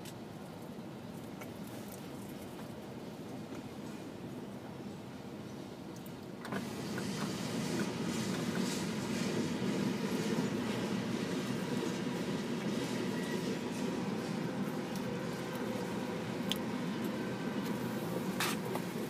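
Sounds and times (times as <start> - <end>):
train wheels rumbling on rails: 6.2 - 19.0.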